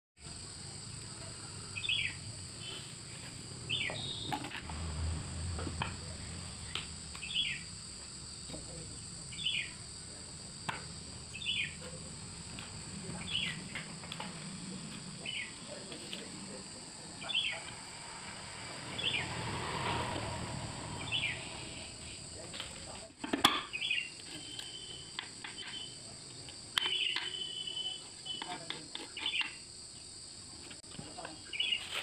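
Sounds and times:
high-pitched insect drone: 0:00.3 - 0:22.9, 0:26.8 - 0:28.7.

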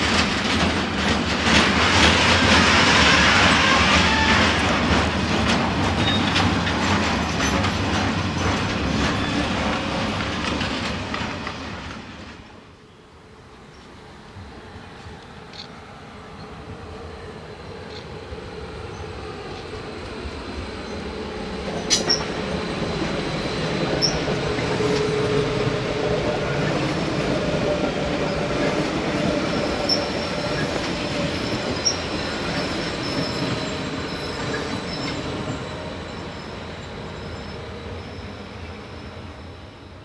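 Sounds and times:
train wheels clattering over rails: 0:00.0 - 0:12.6, 0:18.9 - 0:38.3
electric train passing: 0:00.0 - 0:40.0
high-pitched wheel squeaks: 0:06.0 - 0:06.5, 0:23.9 - 0:24.4, 0:29.6 - 0:39.1.

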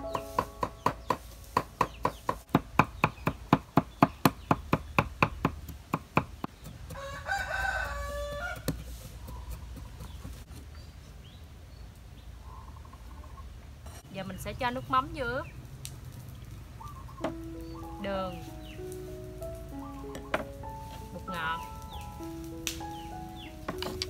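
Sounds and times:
cleaver chopping on wooden board: 0:00.1 - 0:10.4
rooster crowing: 0:06.9 - 0:08.8.

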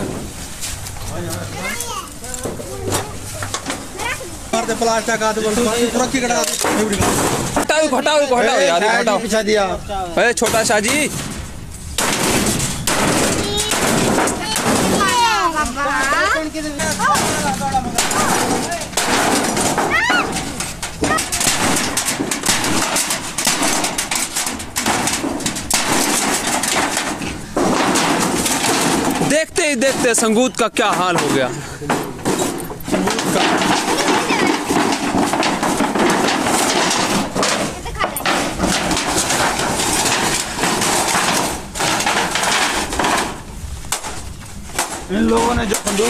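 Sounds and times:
loose metal sheets clattering: 0:00.0 - 0:46.0
metal panels banging together: 0:00.0 - 0:46.0
hammer striking sheet metal: 0:12.0 - 0:15.4, 0:16.8 - 0:46.0.

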